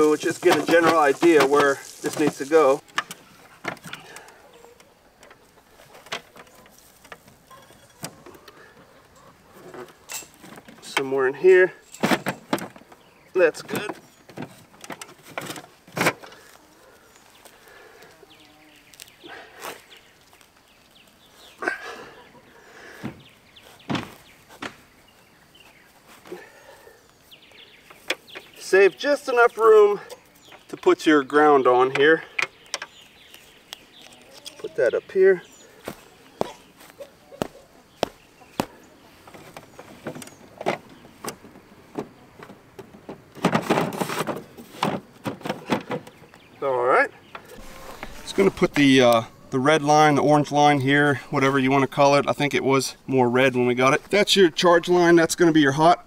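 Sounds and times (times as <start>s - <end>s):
sharp knocks and thumps: 23.0s - 24.8s, 37.4s - 46.2s
rattling and scraping: 38.0s - 46.2s.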